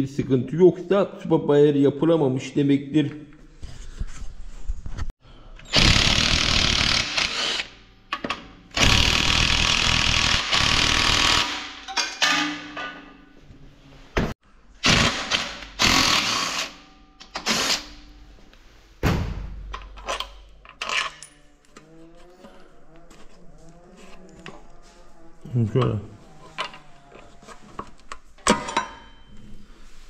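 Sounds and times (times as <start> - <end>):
power tool bursts: 5.6 - 7.8, 8.8 - 11.8, 14.8 - 16.8.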